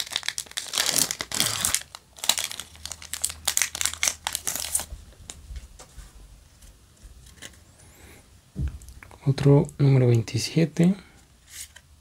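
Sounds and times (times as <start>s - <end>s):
foil wrapper tearing and crinkling: 0.0s - 4.9s.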